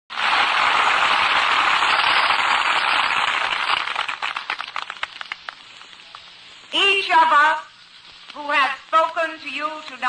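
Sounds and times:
crowd applauding: 0.1s - 6.2s.

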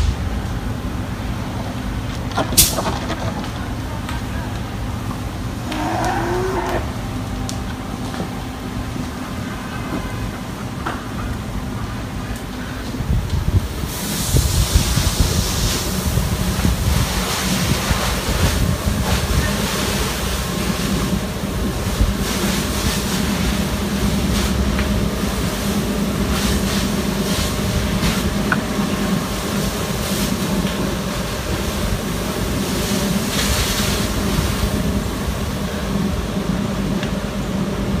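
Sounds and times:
engine low hum: 0.0s - 38.0s.

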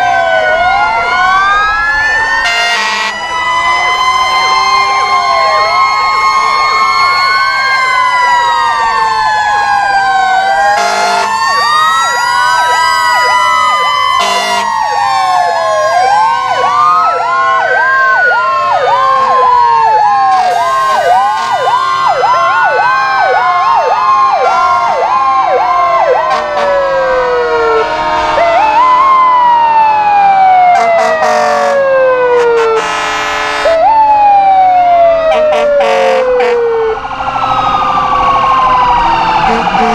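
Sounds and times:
fire engine sirens wailing: 0.0s - 39.9s
short horn blasts: 2.4s - 3.2s, 10.8s - 11.3s, 14.2s - 14.7s, 32.6s - 33.8s.

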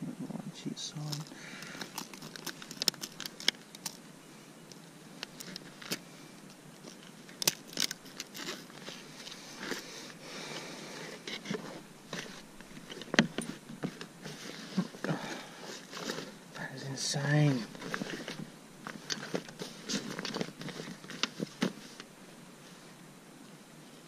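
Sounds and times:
clicks knocks and rustles of handling: 1.1s - 4.0s, 17.4s - 22.1s.

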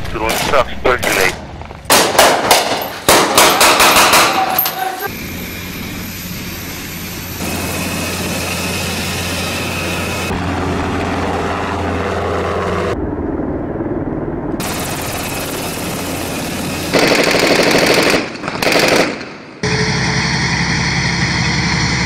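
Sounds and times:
automatic gunfire: 0.3s - 4.5s, 16.9s - 19.4s
heavy tank engine: 2.8s - 18.7s, 19.6s - 22.0s
helicopter engine and rotor: 3.6s - 17.9s, 19.6s - 22.0s.

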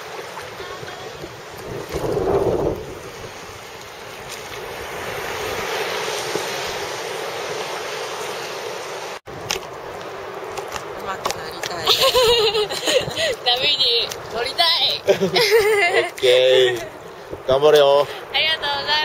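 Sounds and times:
wind buffeting microphone: 0.0s - 7.7s, 9.3s - 15.4s
sea water sloshing: 0.0s - 17.4s.

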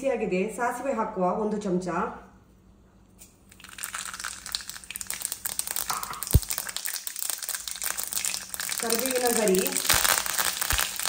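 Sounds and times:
seeds popping in hot oil: 3.4s - 11.0s.

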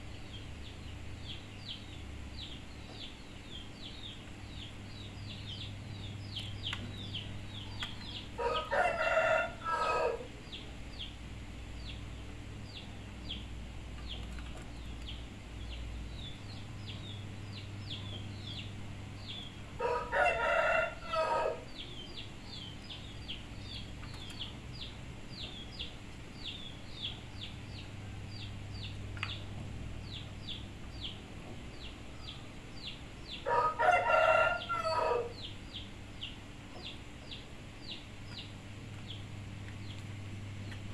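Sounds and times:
rooster crowing: 7.6s - 10.3s, 19.8s - 21.8s, 33.4s - 35.5s.

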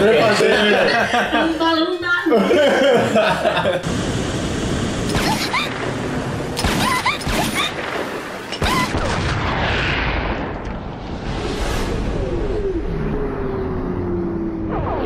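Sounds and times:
sharp impacts: 5.1s - 12.9s
rushing whoosh: 9.4s - 15.0s.

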